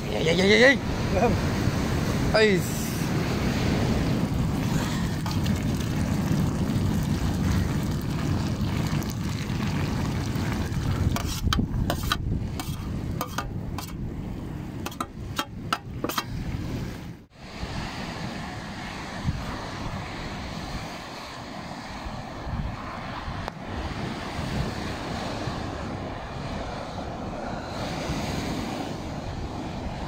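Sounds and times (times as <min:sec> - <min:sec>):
wind rumble on microphone: 0:00.0 - 0:30.0
spoon scraping metal pot: 0:11.1 - 0:14.0, 0:14.8 - 0:16.3.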